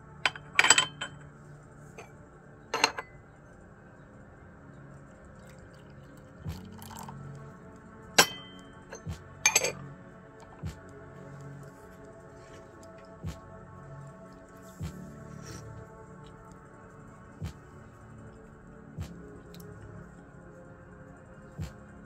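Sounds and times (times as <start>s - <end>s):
soft background music: 0.0s - 22.0s
teaware clinking: 0.3s - 1.3s, 2.7s - 3.2s, 6.5s - 7.2s, 8.2s - 9.8s.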